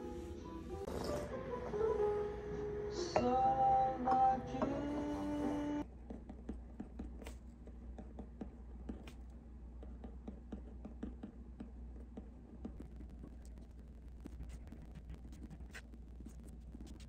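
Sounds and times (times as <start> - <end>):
steady low hum: 0.0 - 17.0
pen scratching on paper: 14.2 - 17.0.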